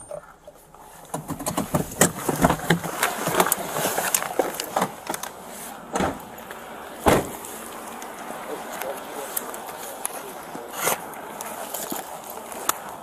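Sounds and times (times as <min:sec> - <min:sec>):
car door opening: 0:01.1 - 0:07.8
clothing rustle: 0:01.9 - 0:05.9.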